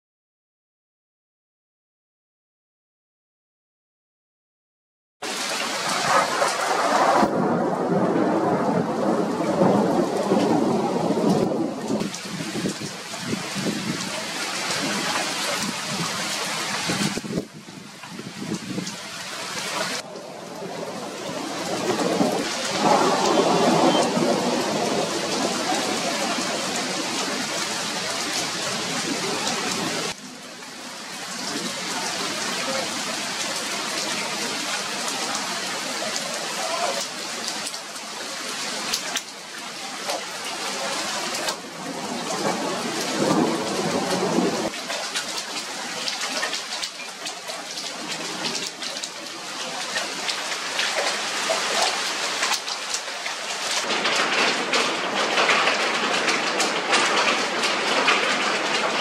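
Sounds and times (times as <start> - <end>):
heavy rain falling: 5.2 - 59.0
thunder rumbling: 5.4 - 17.6, 19.9 - 30.2, 41.6 - 44.7, 53.8 - 59.0.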